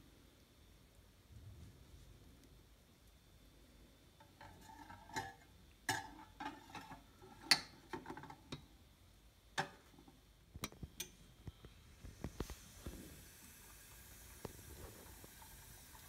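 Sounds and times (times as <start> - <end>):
cups clinking on metal tray: 4.4 - 8.7.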